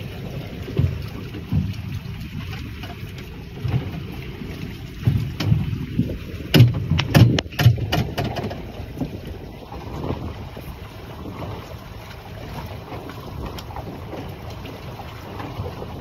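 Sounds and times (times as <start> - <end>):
wind buffeting microphone: 0.0 - 16.0
sharp knocks: 6.5 - 8.6.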